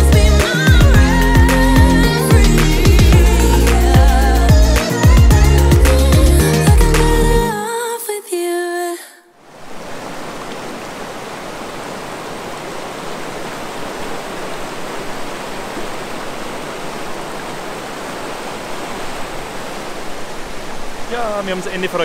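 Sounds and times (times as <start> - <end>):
river rushing over rocks: 9.4 - 22.0.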